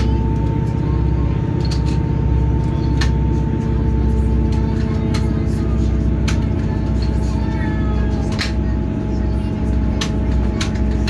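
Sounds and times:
train engine hum: 0.0s - 11.0s.

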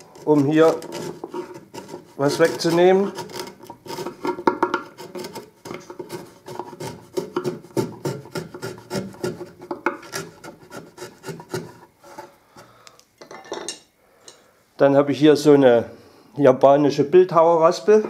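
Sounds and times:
chisel scraping wood: 0.0s - 12.7s.

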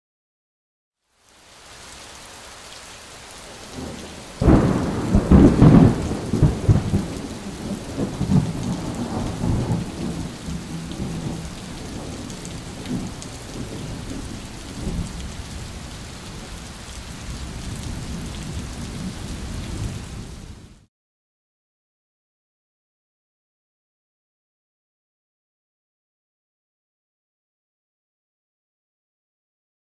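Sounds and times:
steady rain: 1.0s - 20.9s
thunderclap rumbling: 3.8s - 16.4s.

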